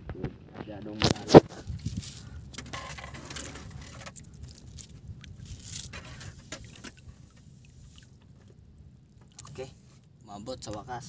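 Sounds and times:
steady low rumble: 0.0 - 11.0
rope scraping and crackling: 0.9 - 8.6.

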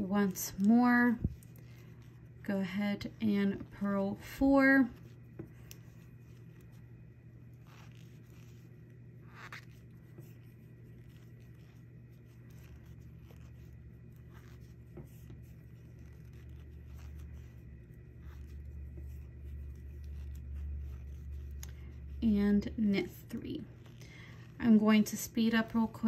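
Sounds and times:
knitting needles scratching and ticking: 0.0 - 26.0
steady low hum: 0.0 - 26.0.

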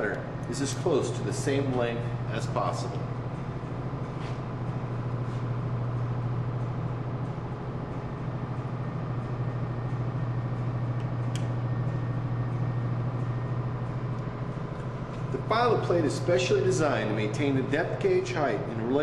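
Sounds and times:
low machinery hum: 0.0 - 19.0.

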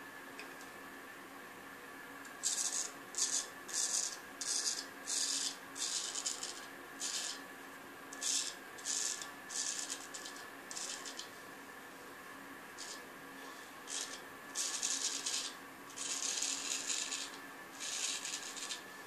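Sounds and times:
razor shaving stubble: 13.9 - 18.8.

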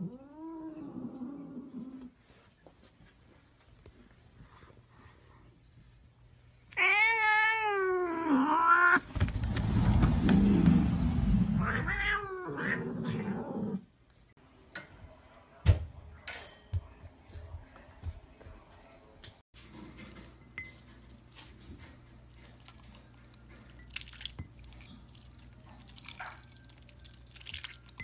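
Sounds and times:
cat yowling: 6.8 - 9.0
low rumbling noise: 9.1 - 11.9.

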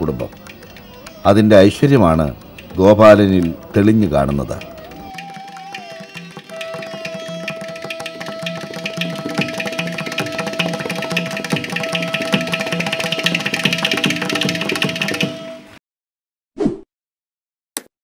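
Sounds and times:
steady drum rhythm: 1.9 - 15.6
long held note: 5.1 - 14.0.

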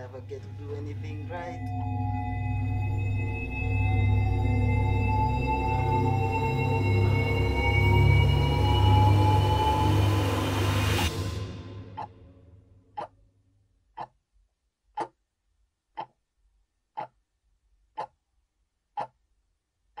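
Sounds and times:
film music: 0.0 - 13.3
clock ticking: 12.9 - 13.2, 13.9 - 14.2, 14.9 - 15.3, 15.9 - 16.3, 16.9 - 18.3, 18.9 - 19.3.

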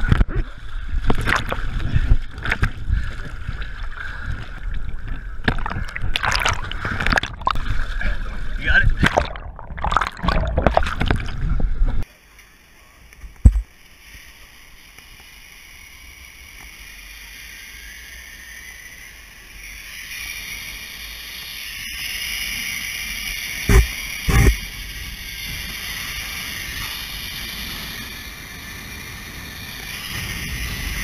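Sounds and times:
churning whitewater: 5.5 - 11.4
zip line hiss: 13.7 - 31.0.

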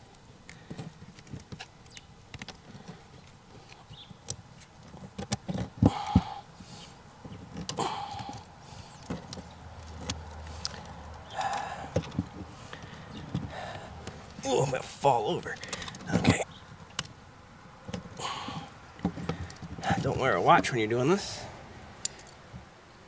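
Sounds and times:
plastic pump handling noise: 7.2 - 14.4, 15.3 - 17.1, 17.9 - 20.2.

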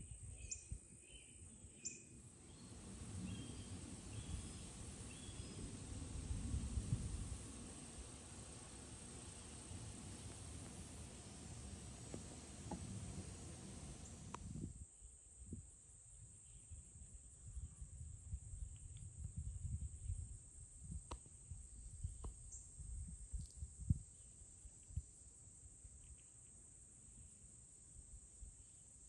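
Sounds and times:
faint clicks: 7.2 - 14.6.

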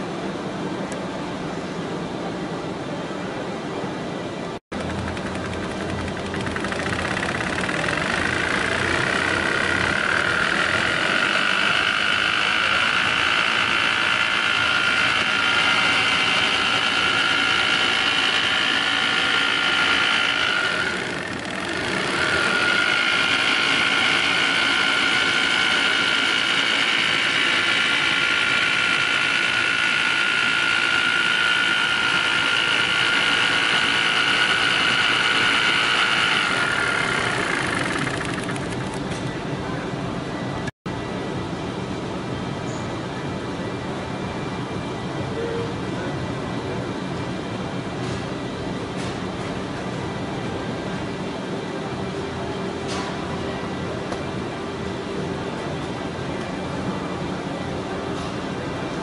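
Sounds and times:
label cutter machine whining: 4.8 - 39.3.

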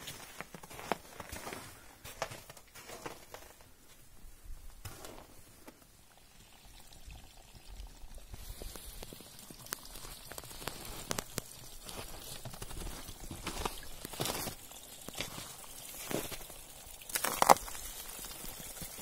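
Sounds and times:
water trickling into plastic bottle: 4.8 - 19.0.

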